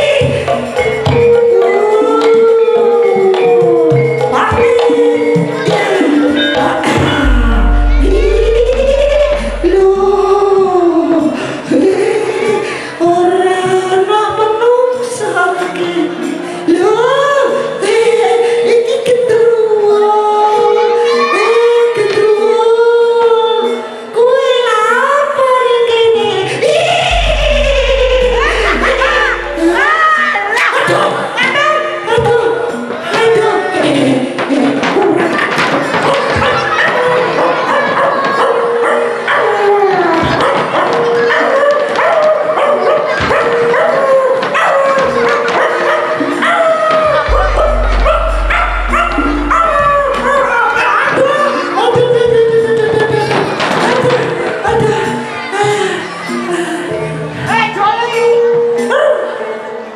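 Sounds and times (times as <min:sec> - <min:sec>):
gamelan music: 0:00.0 - 0:11.6, 0:27.0 - 0:30.6, 0:47.1 - 0:51.8
woman singing sliding notes: 0:01.2 - 0:30.5, 0:47.3 - 0:51.7
drum strokes: 0:06.8 - 0:11.1, 0:27.1 - 0:30.0, 0:47.3 - 0:50.9.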